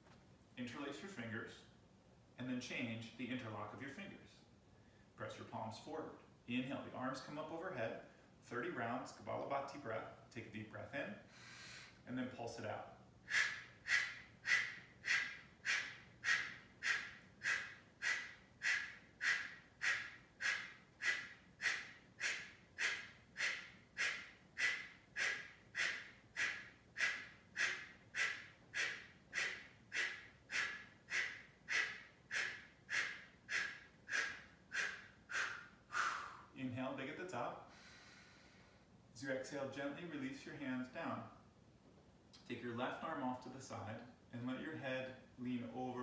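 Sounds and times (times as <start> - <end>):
man exhaling forcefully through nose: 13.3 - 36.5.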